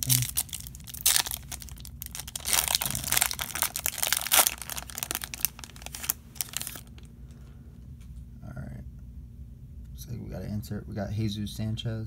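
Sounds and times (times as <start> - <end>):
foil wrapper tearing and crinkling: 0.0 - 7.1.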